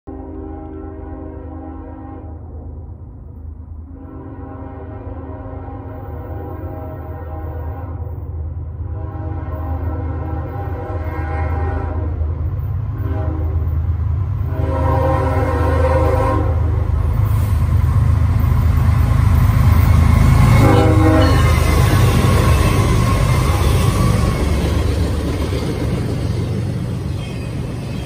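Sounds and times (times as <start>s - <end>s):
train horn blasts: 0.1s - 2.7s, 3.8s - 16.9s, 20.4s - 24.8s
diesel locomotive engine rumble: 0.1s - 28.0s.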